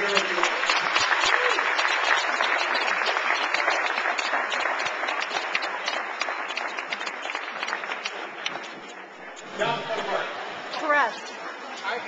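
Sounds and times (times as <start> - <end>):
audience applauding: 0.0 - 10.2.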